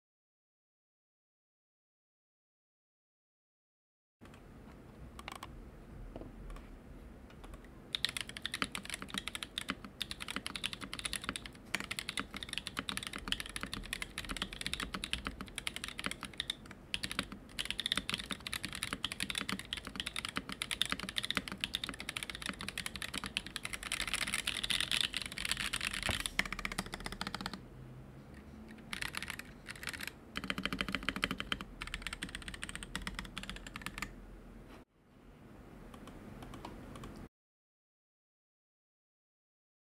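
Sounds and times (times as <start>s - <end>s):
mechanical keyboard typing: 5.2s - 5.5s, 7.4s - 27.6s, 28.7s - 34.1s.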